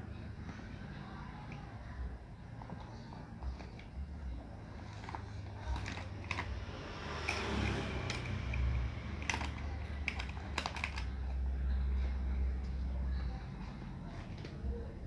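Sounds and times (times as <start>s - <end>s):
plastic blocks clattering: 9.2s - 11.1s.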